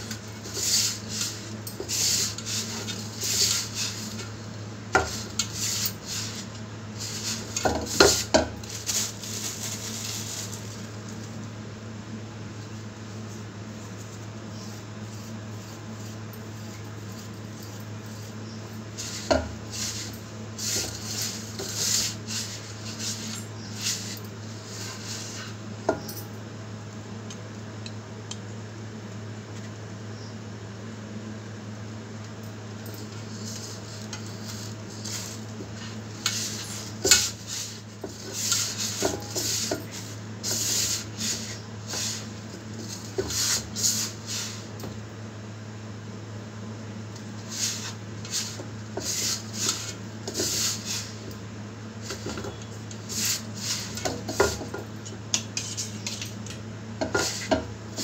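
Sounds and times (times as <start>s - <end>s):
steady low hum: 0.0s - 58.0s
hands rubbing mixture in steel bowl: 0.4s - 4.3s, 5.0s - 10.8s, 19.0s - 25.6s, 33.2s - 44.7s, 47.4s - 51.2s, 52.0s - 54.7s, 55.4s - 56.4s.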